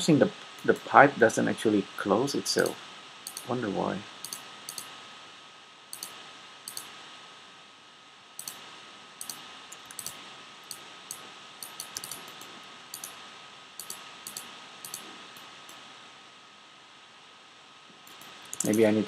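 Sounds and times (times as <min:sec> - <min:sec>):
steady hiss: 0:00.0 - 0:19.0
computer mouse clicking: 0:02.6 - 0:03.6, 0:04.2 - 0:04.9, 0:05.9 - 0:07.0, 0:08.4 - 0:08.6, 0:09.2 - 0:13.2, 0:13.8 - 0:15.8, 0:18.0 - 0:18.9.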